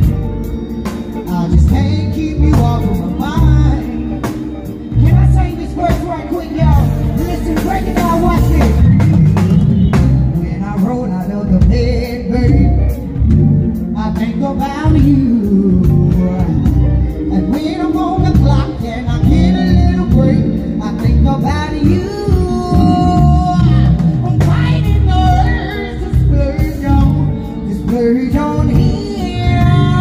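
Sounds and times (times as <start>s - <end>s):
loud music with drums and bass: 0.0s - 30.0s
woman singing into a microphone: 21.8s - 30.0s.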